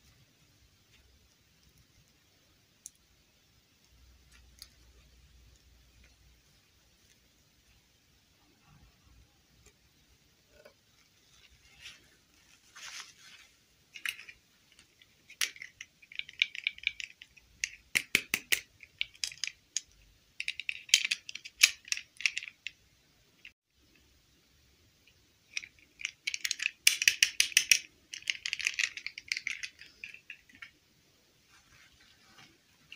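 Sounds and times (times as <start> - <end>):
crinkly rustling: 11.0 - 15.7, 31.4 - 32.9.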